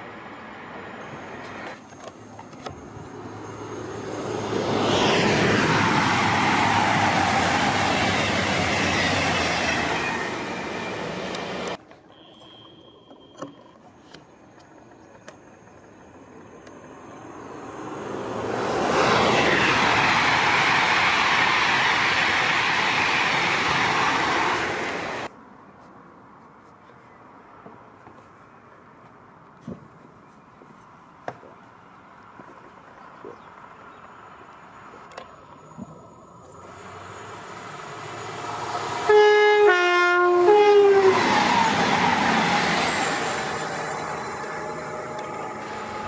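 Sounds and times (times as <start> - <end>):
train passing at speed: 0.0 - 11.8, 14.8 - 25.3, 35.6 - 46.0.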